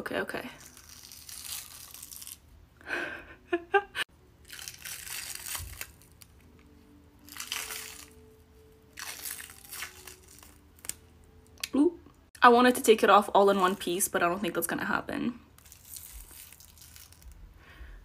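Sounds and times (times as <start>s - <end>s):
latex peeling off skin: 0.6s - 2.4s, 4.4s - 6.3s, 7.3s - 8.2s, 8.9s - 11.0s, 15.6s - 17.4s.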